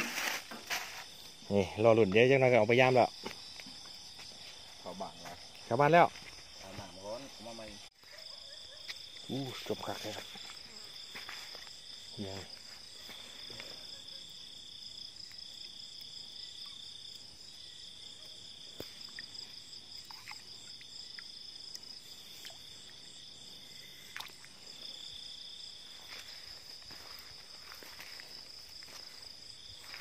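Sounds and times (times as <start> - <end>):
rustling: 0.0 - 1.2
high-pitched insect trill: 0.0 - 30.0
lower insect trill: 0.0 - 30.0.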